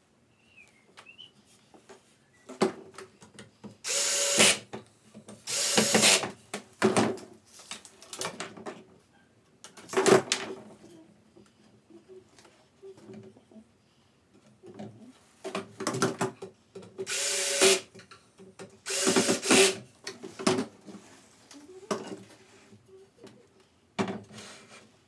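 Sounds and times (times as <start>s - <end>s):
cordless drill motor whine: 3.9s - 4.6s, 5.5s - 6.2s, 17.1s - 17.8s, 18.9s - 19.7s.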